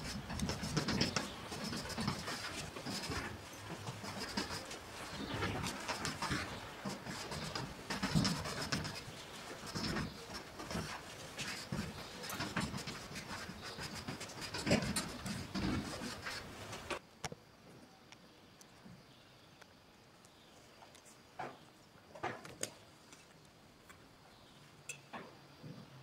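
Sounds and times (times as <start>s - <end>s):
chalk scratching on blackboard: 0.0s - 16.9s.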